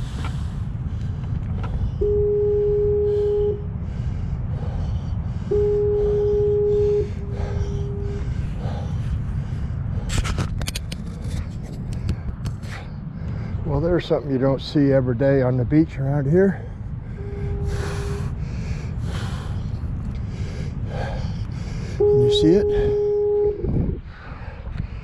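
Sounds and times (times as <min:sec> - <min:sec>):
steady low rumble: 0:00.0 - 0:25.0
metal detector tones: 0:02.0 - 0:03.6, 0:05.5 - 0:08.2, 0:22.0 - 0:23.6.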